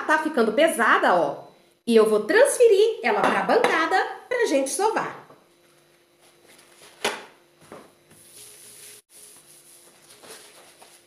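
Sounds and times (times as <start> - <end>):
hand rubbing across counter: 8.1 - 11.0.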